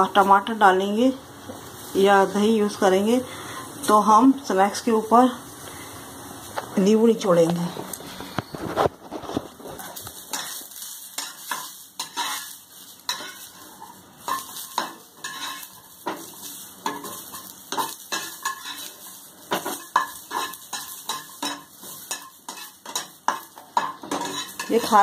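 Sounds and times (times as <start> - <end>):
light sizzle: 0.0 - 25.0
metal spatula scraping a frying pan: 9.1 - 25.0.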